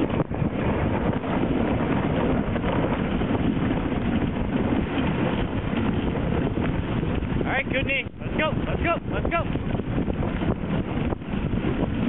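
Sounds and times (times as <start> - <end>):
sled runners scraping on snow: 0.0 - 12.0
wind buffeting microphone: 0.0 - 12.0.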